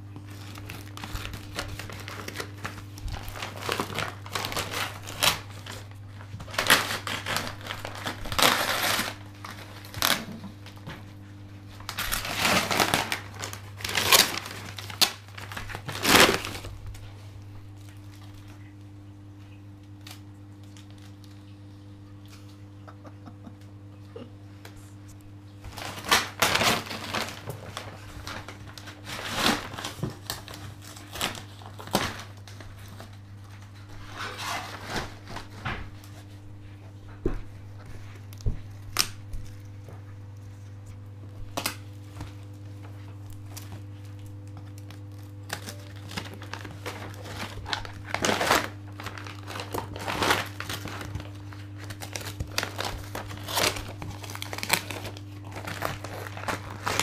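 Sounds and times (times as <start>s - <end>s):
steady low hum: 0.0s - 57.0s
wrapping paper tearing and crumpling: 0.2s - 10.8s, 11.6s - 17.1s, 25.7s - 36.3s, 41.5s - 57.0s.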